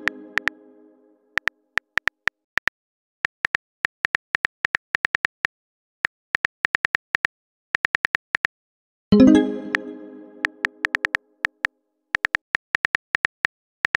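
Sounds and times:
phone keyboard typing clicks: 0:00.0 - 0:00.6.

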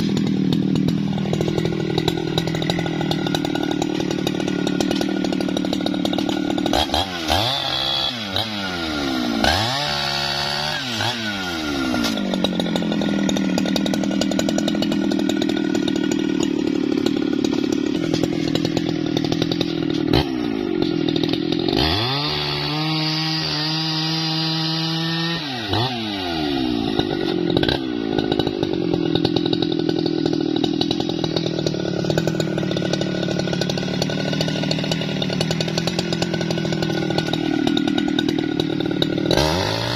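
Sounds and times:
chainsaw cutting tree trunk: 0:00.0 - 0:39.9.

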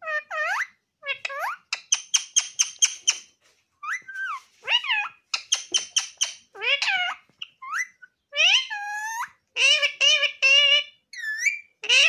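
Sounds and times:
parakeet squawking: 0:03.8 - 0:12.0.

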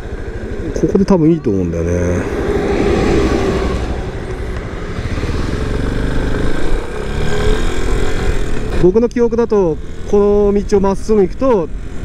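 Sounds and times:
wind noise: 0:00.0 - 0:07.0
motorcycle engine accelerating: 0:00.0 - 0:11.0.

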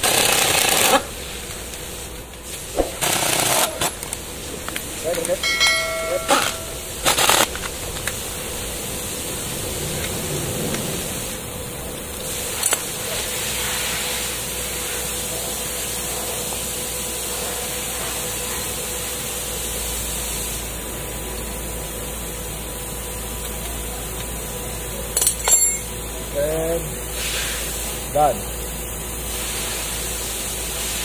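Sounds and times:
steady hiss: 0:00.8 - 0:17.4, 0:26.3 - 0:31.0.

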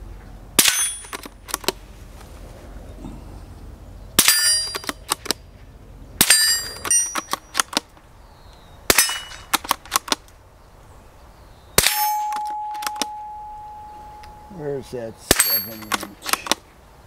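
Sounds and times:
metallic ringing: 0:00.6 - 0:01.2, 0:04.2 - 0:04.9, 0:06.2 - 0:07.6, 0:11.8 - 0:16.4
rifle shots: 0:00.6 - 0:01.3, 0:08.9 - 0:10.2, 0:11.8 - 0:13.2, 0:15.3 - 0:16.6.

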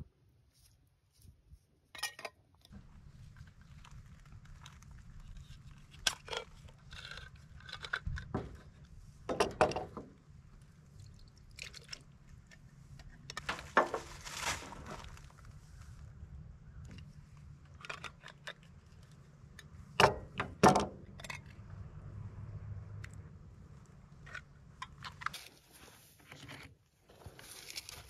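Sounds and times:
steady low rumble: 0:10.1 - 0:20.3.

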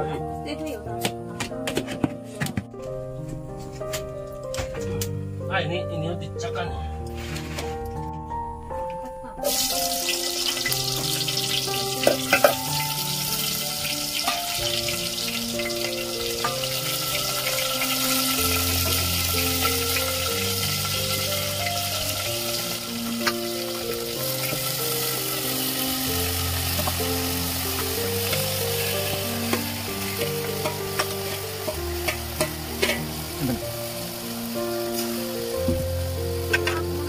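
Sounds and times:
background music: 0:00.0 - 0:37.0
hot oil sizzling in a pot: 0:09.4 - 0:37.0.

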